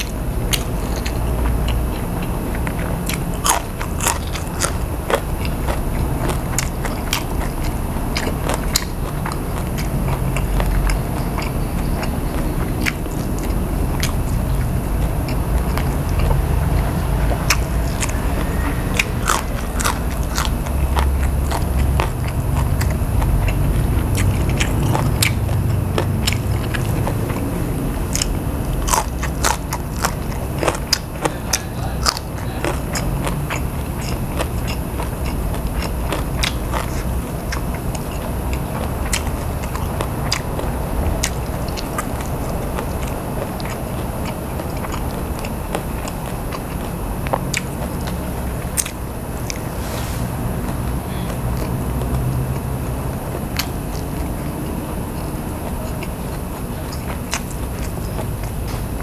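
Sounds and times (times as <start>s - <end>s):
low rumble: 0.0s - 34.4s
man chewing and biting: 0.0s - 59.0s.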